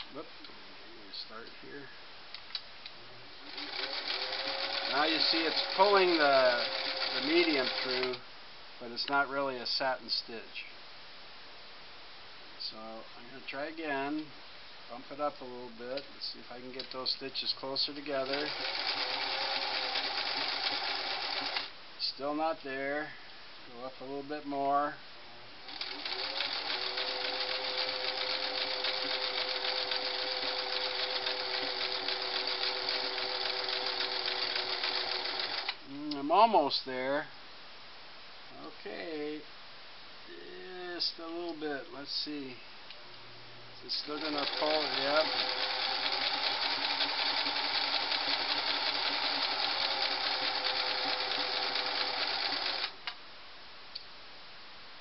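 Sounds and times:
sewing machine running: 3.4 - 8.2, 18.1 - 21.7, 25.7 - 35.8, 44.0 - 53.0.

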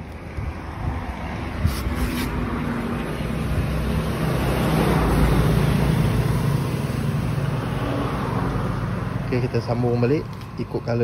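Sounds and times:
vehicle engine passing: 0.7 - 10.3.

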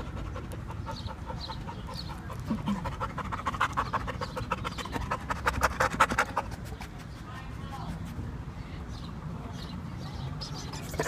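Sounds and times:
dog panting: 0.0 - 7.3.

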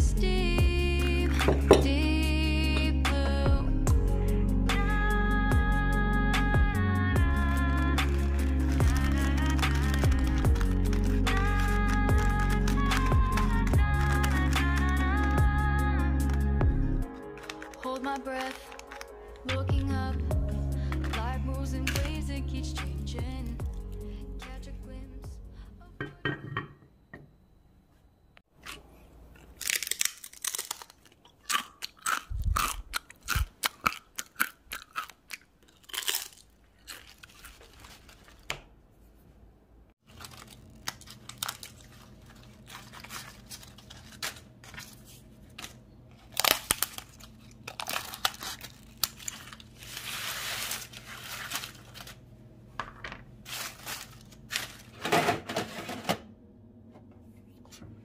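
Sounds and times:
crisp snacks crunching: 7.7 - 15.4, 17.1 - 19.6, 28.6 - 38.5, 40.0 - 52.2, 53.4 - 55.0.

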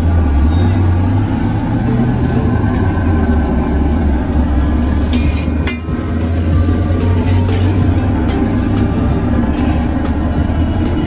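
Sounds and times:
low engine-like rumble: 0.0 - 11.0.

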